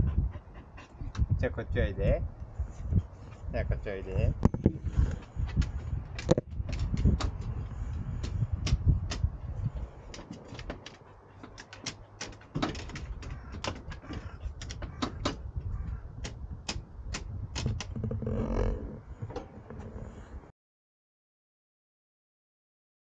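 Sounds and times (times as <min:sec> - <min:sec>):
dog claws clicking on wooden boards: 0:05.0 - 0:18.3.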